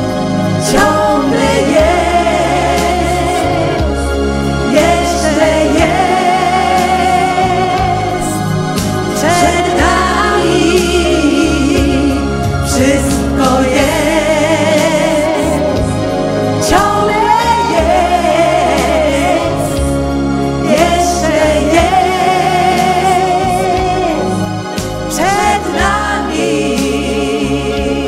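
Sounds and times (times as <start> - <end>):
band accompaniment: 0.0 - 28.0
woman singing: 4.7 - 8.5, 9.1 - 15.9, 16.6 - 20.0, 25.1 - 28.0.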